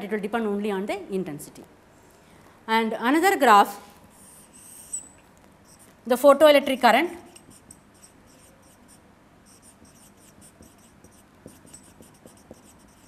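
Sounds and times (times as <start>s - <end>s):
marker squeaking on whiteboard: 4.2s - 5.9s, 7.3s - 13.0s.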